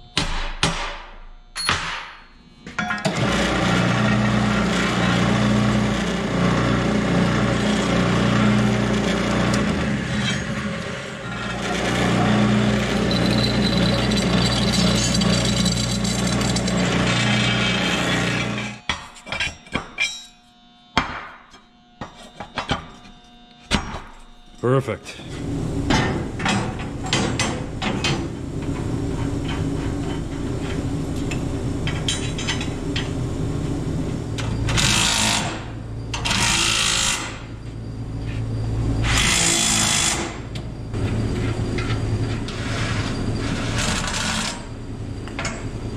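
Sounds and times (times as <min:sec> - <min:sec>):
drill press cutting steel: 0:02.9 - 0:20.4, 0:34.4 - 0:37.6.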